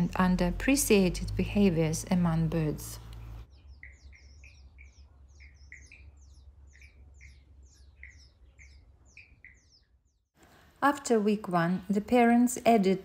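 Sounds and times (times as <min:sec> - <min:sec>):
bird chirping: 0:01.9 - 0:10.4.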